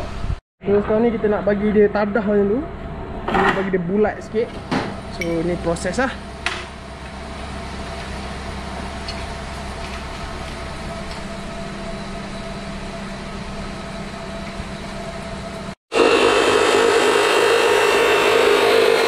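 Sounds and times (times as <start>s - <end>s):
low mechanical hum: 0.0s - 15.8s
chop saw cutting steel tube: 16.0s - 19.0s.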